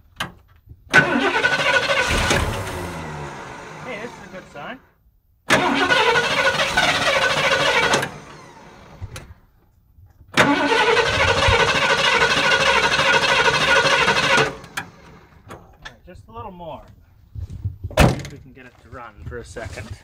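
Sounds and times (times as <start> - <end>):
engine starter cranking: 0.9 - 4.6, 5.5 - 9.4, 10.4 - 15.6.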